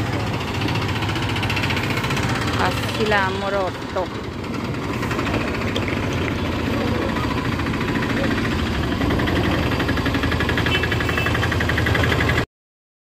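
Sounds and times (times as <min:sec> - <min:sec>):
rickshaw engine idling with rattle: 0:00.0 - 0:12.5.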